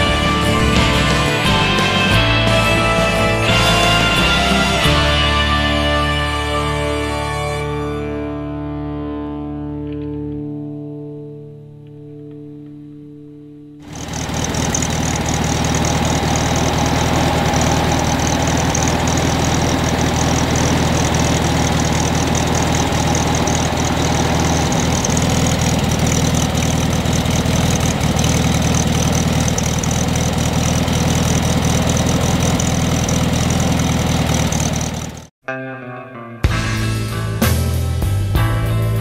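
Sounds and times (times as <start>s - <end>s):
car engine idling: 13.8s - 35.3s.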